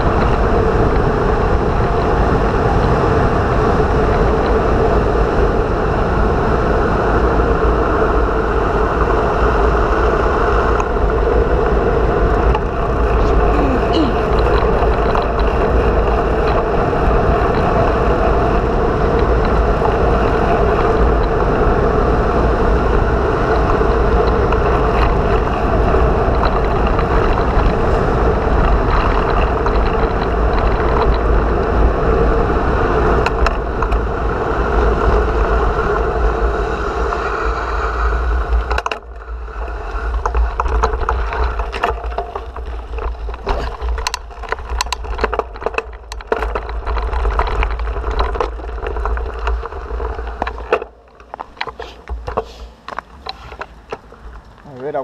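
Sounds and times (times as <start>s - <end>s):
small clicks and crackles: 0.0s - 3.2s, 10.6s - 21.7s, 22.9s - 34.1s, 37.0s - 55.0s
bicycle rolling on dirt path: 0.0s - 55.0s
bicycle tyre roar on asphalt: 0.0s - 55.0s
wind buffeting microphone: 0.0s - 55.0s.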